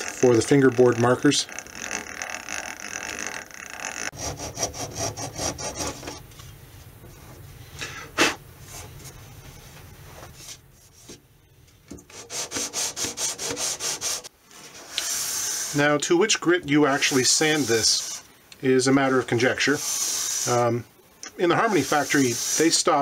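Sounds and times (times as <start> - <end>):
sanding block rubbing wood: 12.1 - 15.9, 16.9 - 18.2, 19.4 - 20.8, 21.5 - 23.0
steel blade scraping wood: 16.9 - 18.3, 21.6 - 23.0.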